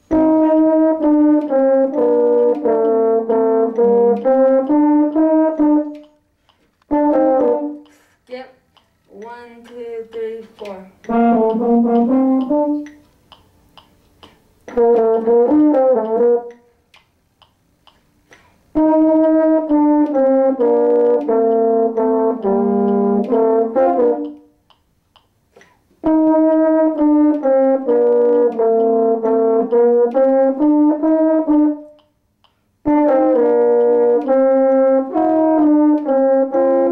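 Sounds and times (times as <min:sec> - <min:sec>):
french horns duet: 0:00.0 - 0:06.1, 0:06.9 - 0:08.1, 0:11.0 - 0:13.0, 0:14.7 - 0:16.6, 0:18.7 - 0:24.5, 0:26.0 - 0:32.0, 0:32.8 - 0:36.9.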